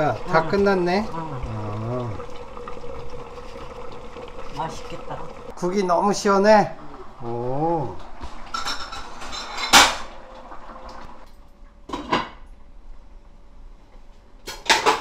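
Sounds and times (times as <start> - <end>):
low room noise: 0.0 - 15.0
tableware clattering: 8.4 - 10.2, 14.4 - 15.0.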